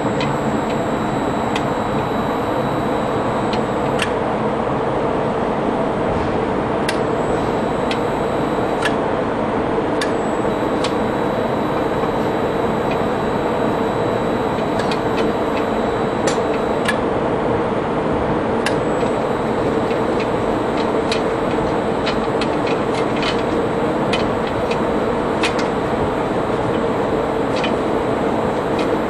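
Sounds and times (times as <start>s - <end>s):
machinery noise: 0.0s - 4.0s, 7.1s - 8.9s, 10.0s - 16.9s.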